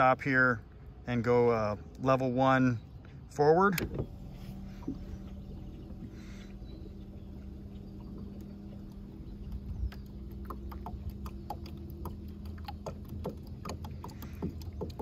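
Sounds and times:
water splashing against hull: 3.0 - 15.0.

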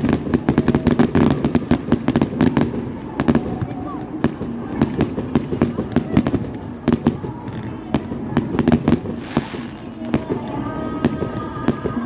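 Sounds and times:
fireworks bangs and crackles: 0.0 - 12.0
firework whistling: 8.7 - 12.0
firework hiss: 9.0 - 10.0.

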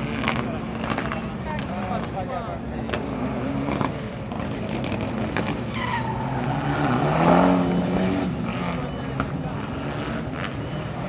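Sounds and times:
rally car engine revving: 0.0 - 2.2, 2.8 - 11.0
tyre squeal: 5.4 - 10.9.

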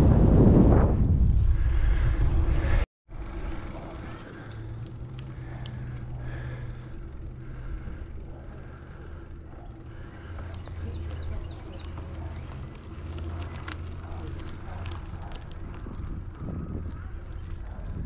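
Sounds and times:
wind buffeting microphone: 0.0 - 2.8, 14.4 - 18.0
road noise: 1.4 - 18.0.

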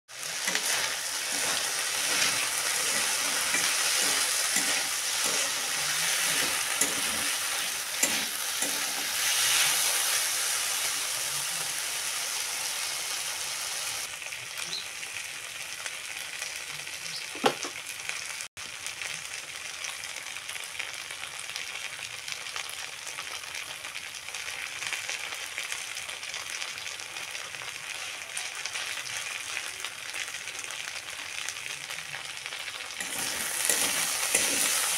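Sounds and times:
spatula scraping a wok: 0.1 - 10.9, 33.0 - 34.9
food sizzling in hot oil: 0.1 - 34.9.

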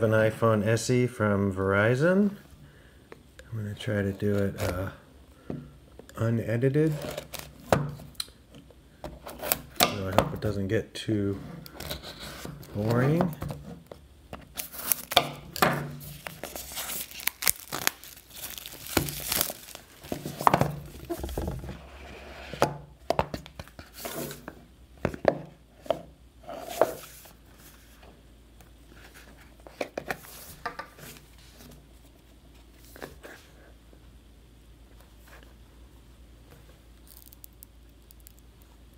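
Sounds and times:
plastic wrap tearing and crinkling: 14.5 - 21.6, 37.0 - 38.6.

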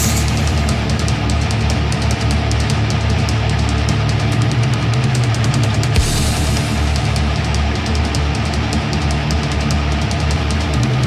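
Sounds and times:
rapid cymbal strokes: 0.0 - 2.9, 6.0 - 8.8
speed metal song: 0.0 - 11.0.

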